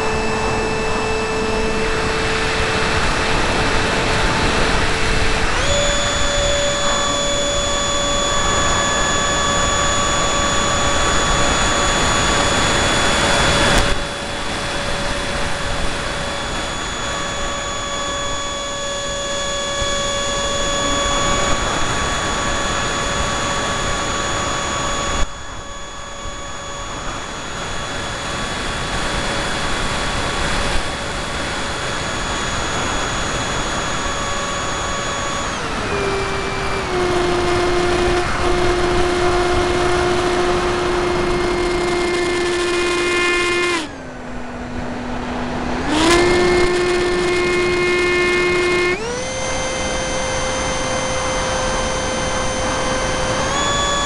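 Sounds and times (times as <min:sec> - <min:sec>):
model airplane motor whining: 0:00.0 - 0:54.0.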